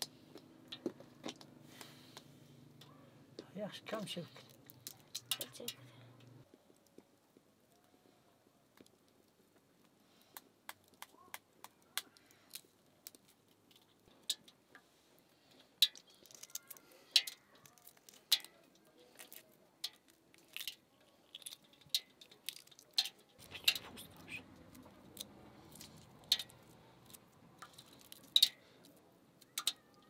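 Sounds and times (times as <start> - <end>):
sharp clicks and light taps: 4.4 - 6.3.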